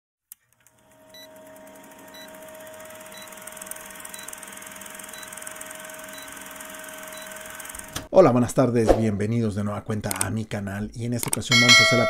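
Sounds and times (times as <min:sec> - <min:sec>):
click: 0:10.1 - 0:10.3, 0:11.2 - 0:11.4.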